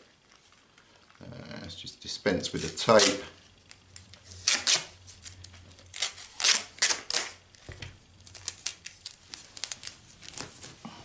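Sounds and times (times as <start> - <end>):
tape being peeled off: 2.5 - 10.8.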